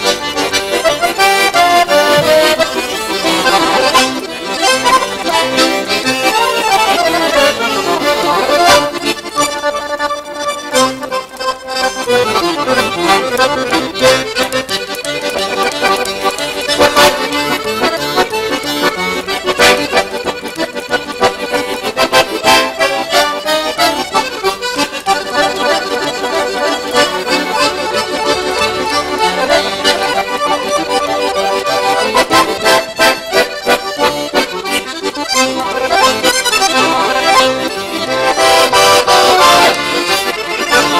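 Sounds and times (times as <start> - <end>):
piano accordions playing a duet: 0.0 - 40.9.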